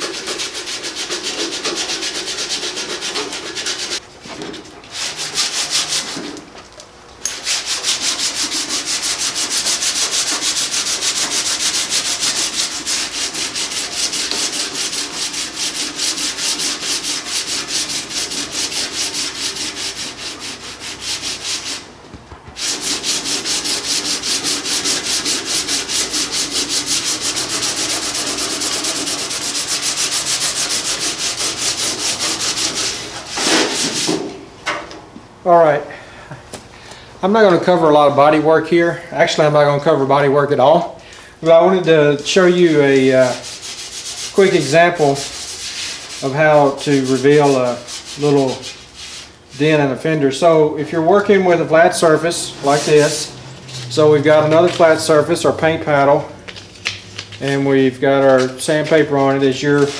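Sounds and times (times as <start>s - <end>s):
sandpaper rubbing on painted metal: 0.0s - 4.0s, 5.0s - 6.4s, 7.3s - 21.9s, 22.5s - 34.2s, 42.2s - 50.3s, 51.0s - 55.2s, 57.4s - 59.9s.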